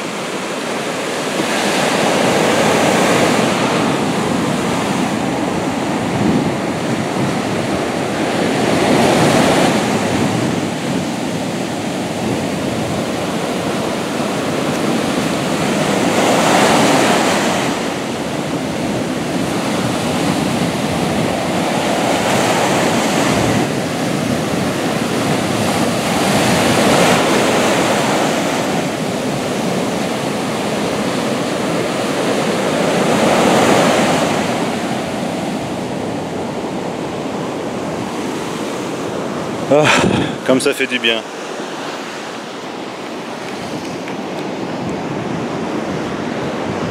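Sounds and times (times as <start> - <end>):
ocean surf breaking on beach: 0.0 - 46.9.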